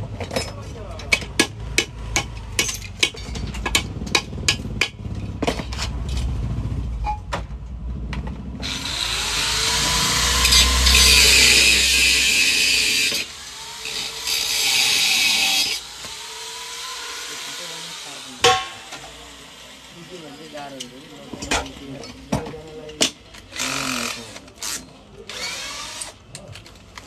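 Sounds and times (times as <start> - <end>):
sharp metal knocks: 0.2 - 6.1, 18.4 - 19.1
angle grinder grinding metal: 8.6 - 26.2.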